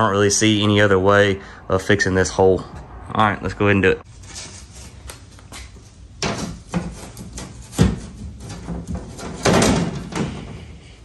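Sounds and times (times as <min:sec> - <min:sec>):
metal sheet knocks and clatters: 0:06.2 - 0:10.8.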